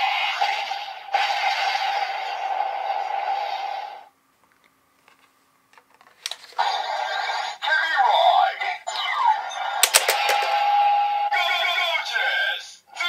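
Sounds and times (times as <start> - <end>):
plastic card clicks: 9.8 - 10.6
sharp click: 9.8 - 10.6.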